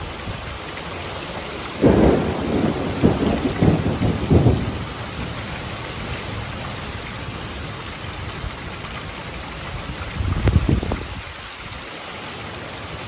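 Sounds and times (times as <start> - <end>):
heavy rain: 0.0 - 13.0
rushing wind: 1.8 - 11.9
wind gusts buffeting microphone: 9.6 - 11.8.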